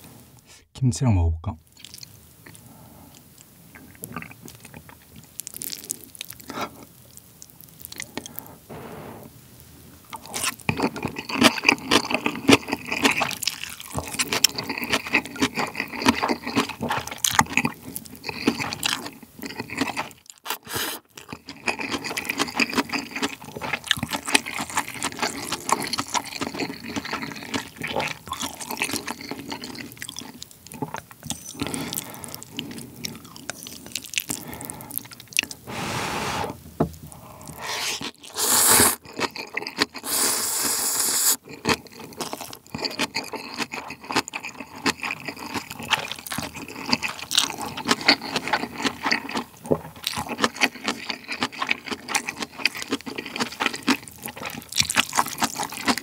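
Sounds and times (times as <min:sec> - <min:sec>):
wet chewing and lip smacks: 0:01.8 - 0:06.5, 0:41.4 - 0:56.0
noodle slurps: 0:19.5 - 0:21.1, 0:35.7 - 0:36.6, 0:37.2 - 0:42.0.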